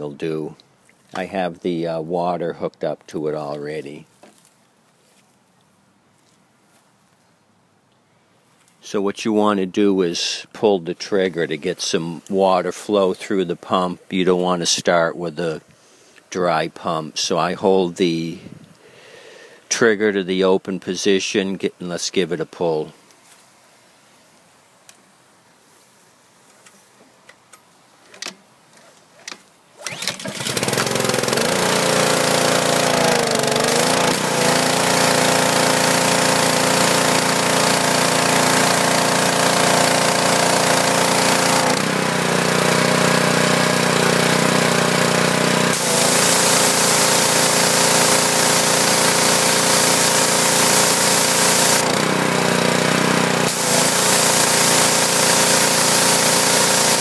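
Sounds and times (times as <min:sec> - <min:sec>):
pull starter clicks: 0:29.2 - 0:38.8, 0:45.2 - 0:57.0
small engine running: 0:29.8 - 0:57.0
high-pressure water spray hissing: 0:30.0 - 0:57.0.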